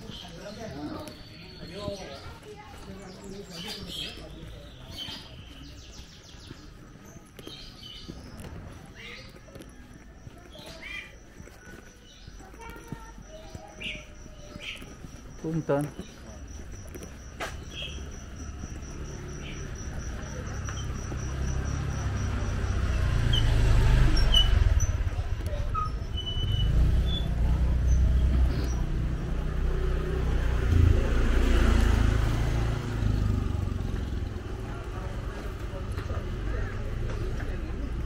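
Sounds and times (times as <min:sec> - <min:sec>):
cricket chirping: 0:09.0 - 0:38.0.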